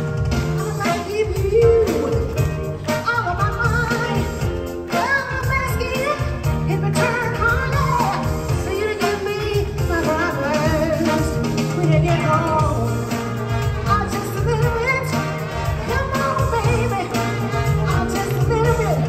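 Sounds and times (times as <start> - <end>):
live band playing: 0.0 - 19.0
woman singing: 0.4 - 19.0.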